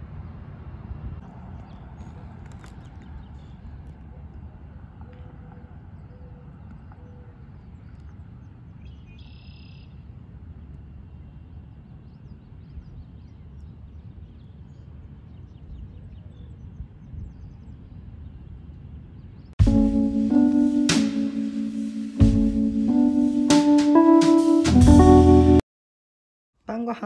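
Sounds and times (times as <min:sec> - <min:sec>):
faint bird chirps: 0:08.8 - 0:10.0.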